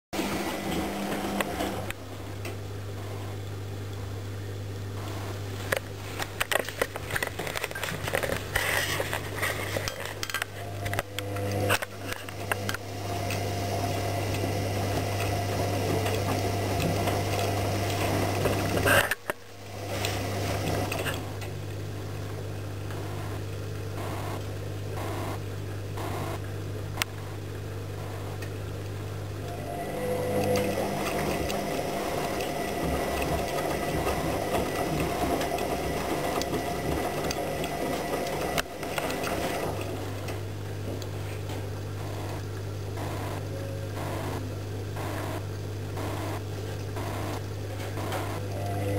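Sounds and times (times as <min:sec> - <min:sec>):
washing machine drum hum: 0:00.2 - 0:08.2, 0:10.5 - 0:25.9, 0:27.8 - 0:48.9
rapid clicking and clattering: 0:30.4 - 0:40.4.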